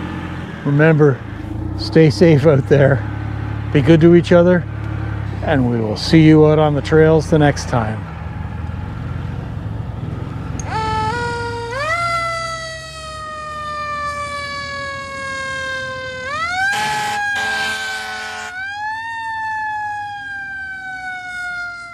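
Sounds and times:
low rumble: 0:09.7 - 0:11.4
electronic siren-like tone: 0:10.1 - 0:21.9.

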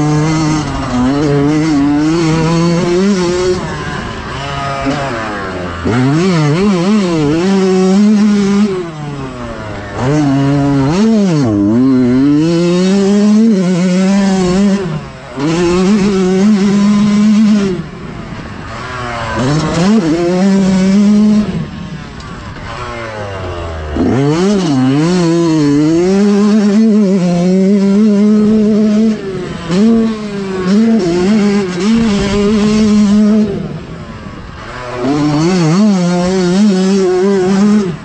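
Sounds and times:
two-stroke motorbike engine revving: 0:00.0 - 0:38.0.

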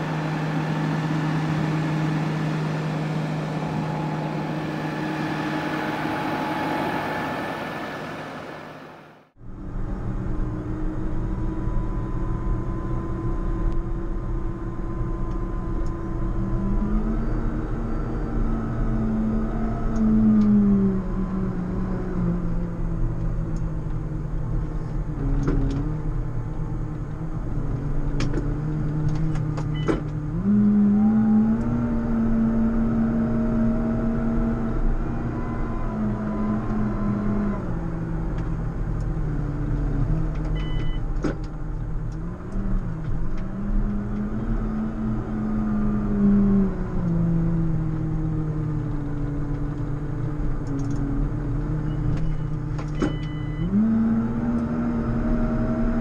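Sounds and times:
tractor diesel engine under load: 0:00.0 - 0:09.4.

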